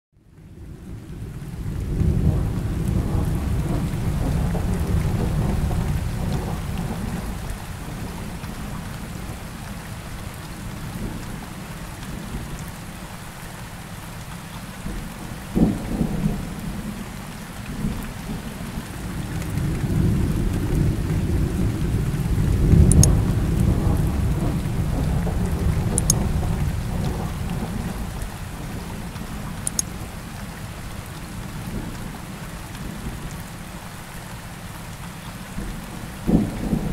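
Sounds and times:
steady rain: 0:00.1 - 0:36.9
thunder rumbling: 0:00.5 - 0:12.5, 0:14.8 - 0:33.8, 0:35.5 - 0:36.9
thunder crack: 0:01.9 - 0:07.6, 0:19.4 - 0:28.8.

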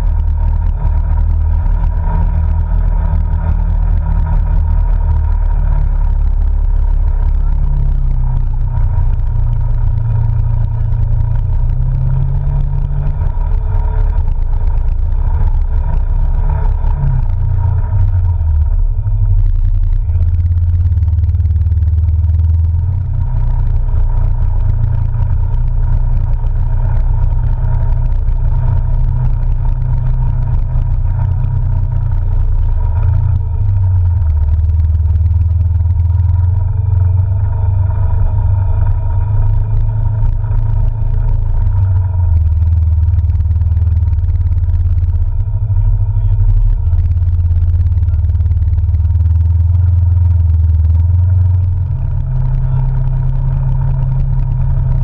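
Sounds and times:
off-road vehicle engine rumble: 0:00.0 - 0:55.0.

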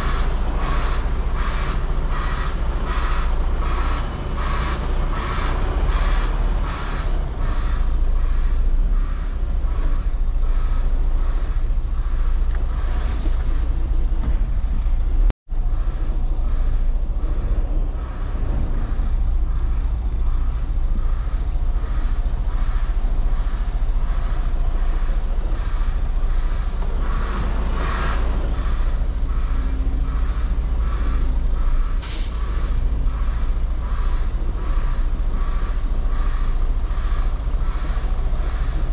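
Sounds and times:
truck diesel engine running: 0:00.0 - 0:38.9
air brakes hissing: 0:31.8 - 0:33.0.

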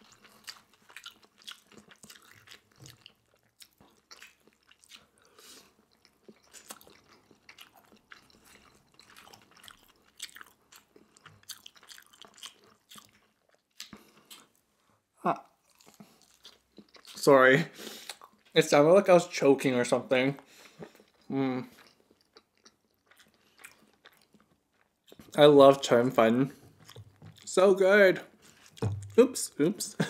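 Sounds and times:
mouth clicks and smacks chewing: 0:00.0 - 0:14.6, 0:15.7 - 0:17.3, 0:18.0 - 0:18.6, 0:20.6 - 0:25.4, 0:26.7 - 0:27.5.

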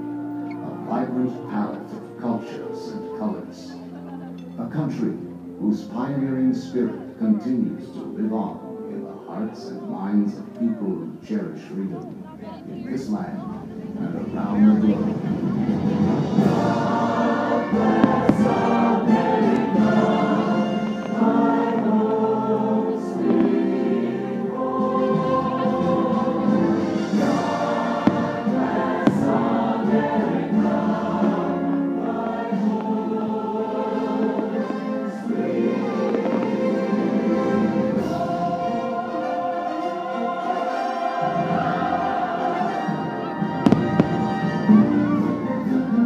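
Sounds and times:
choir singing with orchestra: 0:00.0 - 0:11.9, 0:13.9 - 0:46.0
fireworks bangs: 0:17.6 - 0:24.1, 0:25.8 - 0:31.5, 0:34.0 - 0:38.2, 0:43.5 - 0:45.3.

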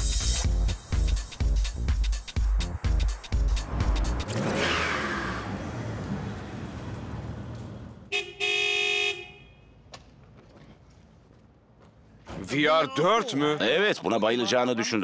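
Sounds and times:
car engine rumble: 0:02.1 - 0:08.1
car horn honking: 0:08.1 - 0:09.8.

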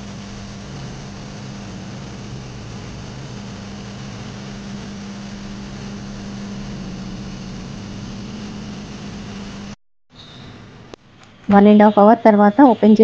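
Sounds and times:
washing machine motor hum: 0:00.0 - 0:09.8.

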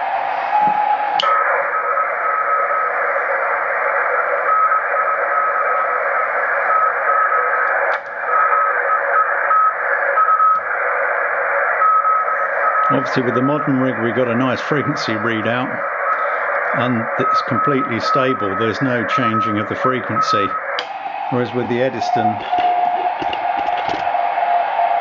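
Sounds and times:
radio band hiss: 0:00.0 - 0:25.0
morse code beeps: 0:16.0 - 0:23.6.

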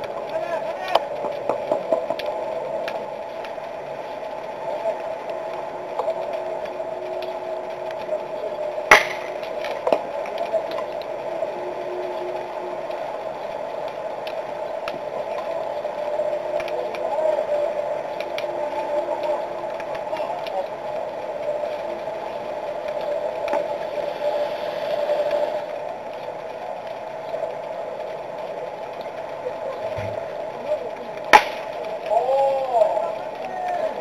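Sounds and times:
faint clicks: 0:00.0 - 0:34.0
field ambience hum: 0:00.0 - 0:34.0
bat cracking ball: 0:08.9 - 0:09.3, 0:31.3 - 0:31.7.

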